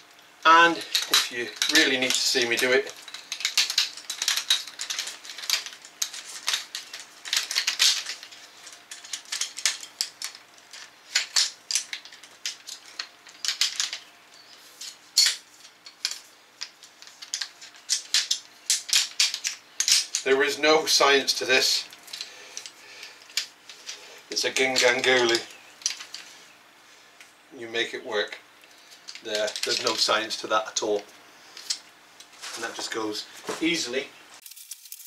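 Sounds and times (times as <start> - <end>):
metal tube sections clattering: 0.5 - 26.4, 28.7 - 35.0.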